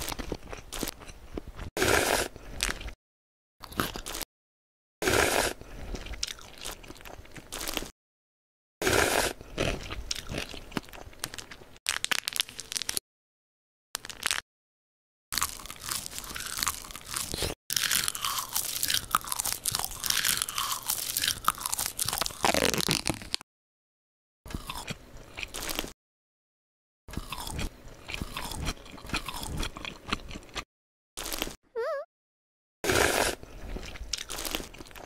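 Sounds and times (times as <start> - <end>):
crunching and chewing: 0.0 - 3.0, 3.6 - 4.3, 5.0 - 7.9, 8.8 - 13.0, 14.0 - 14.4, 15.3 - 23.4, 24.5 - 26.0, 27.1 - 31.6, 32.9 - 35.0.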